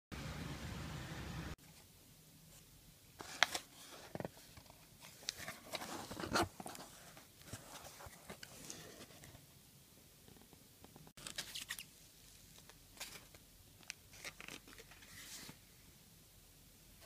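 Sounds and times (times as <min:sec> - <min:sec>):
outdoor hiss: 0:00.1 - 0:05.9.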